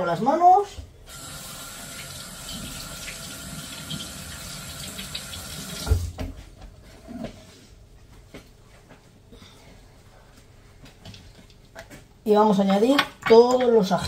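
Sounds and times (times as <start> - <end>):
tap water running: 1.1 - 6.2.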